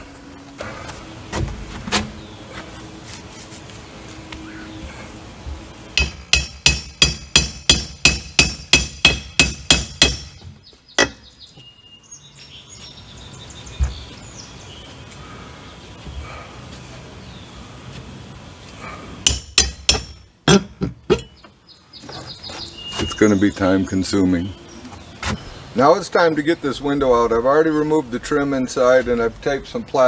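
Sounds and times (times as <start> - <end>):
hammer tapping steel bar: 6.0 - 10.3, 19.2 - 20.2.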